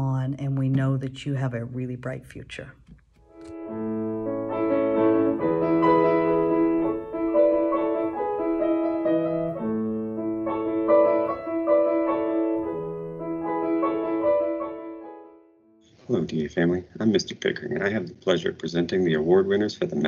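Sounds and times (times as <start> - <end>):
slow piano music: 3.3 - 15.8.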